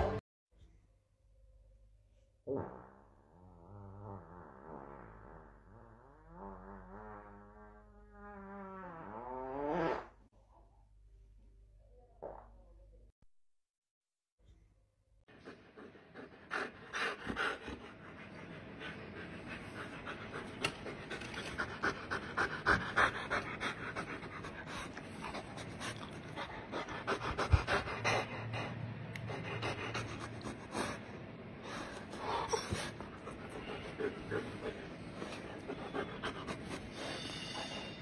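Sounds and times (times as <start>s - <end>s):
dog panting: 15.3s - 37.9s.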